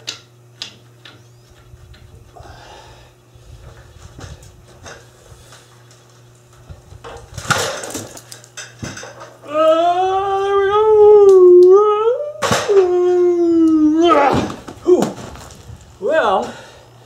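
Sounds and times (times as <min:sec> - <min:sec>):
loud voice howling: 0:09.4 - 0:15.2.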